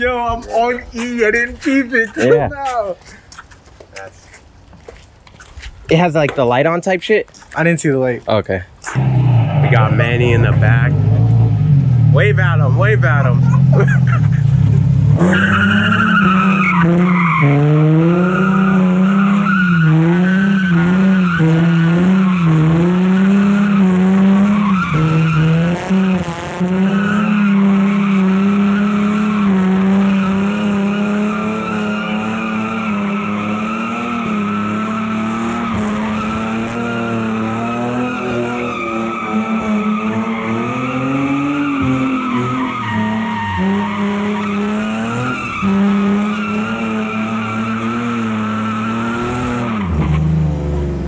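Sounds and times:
tires squealing on wet concrete: 0:08.8 - 0:50.5
car engine revving high: 0:08.9 - 0:51.0.

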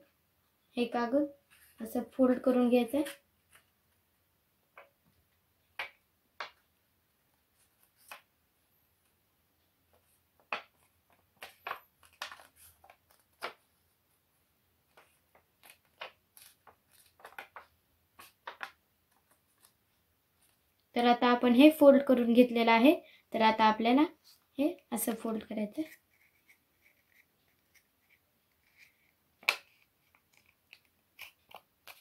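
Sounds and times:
paper crackling and rustling: 0:10.5 - 0:13.8, 0:14.9 - 0:19.8, 0:25.8 - 0:32.0.

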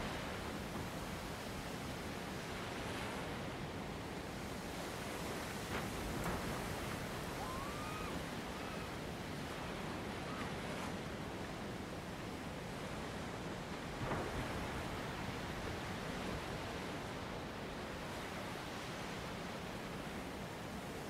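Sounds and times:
wind: 0:00.0 - 0:21.0
sea waves washing against rock: 0:04.4 - 0:10.1
faint whistled glides: 0:06.6 - 0:11.0.

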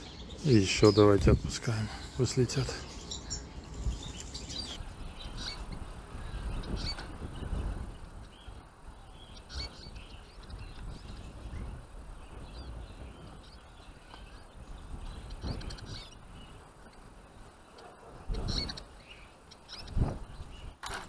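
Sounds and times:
finches chirping: 0:00.0 - 0:20.9.

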